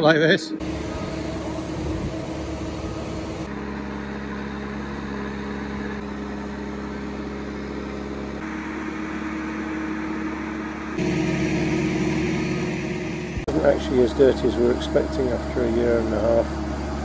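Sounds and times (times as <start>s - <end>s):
travel lift engine and hydraulics: 0.6s - 17.0s.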